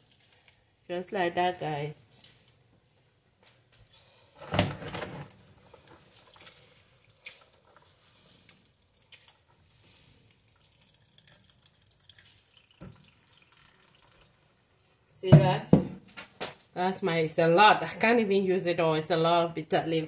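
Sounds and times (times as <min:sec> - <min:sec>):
water splashing and dripping: 0:05.7 - 0:14.5.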